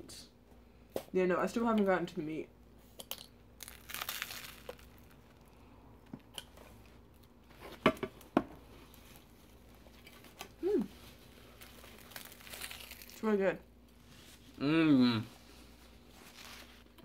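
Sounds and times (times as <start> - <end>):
soft rustling: 15.4 - 17.0.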